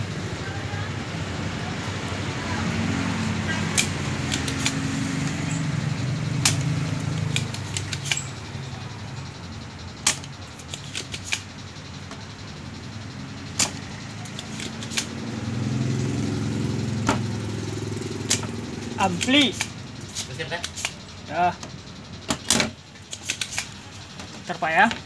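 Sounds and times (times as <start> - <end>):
small engine humming: 0.0 - 25.0.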